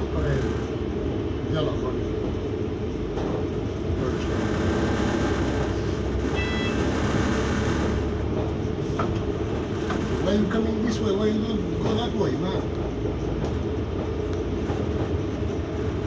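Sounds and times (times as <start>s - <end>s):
bus drivetrain and road drone: 0.0s - 16.0s.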